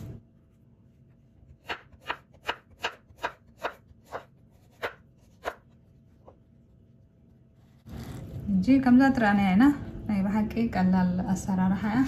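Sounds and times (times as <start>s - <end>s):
knife slicing on wooden board: 1.6s - 5.8s.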